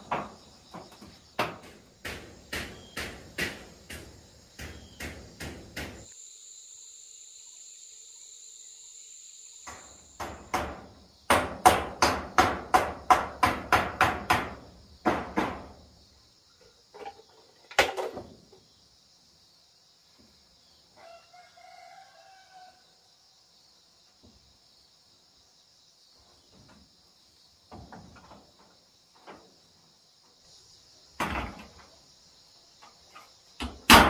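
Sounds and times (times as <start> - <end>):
hammer on metal roof sheeting: 0.0 - 6.1, 9.7 - 15.8, 33.6 - 34.0
insect drone: 0.0 - 34.0.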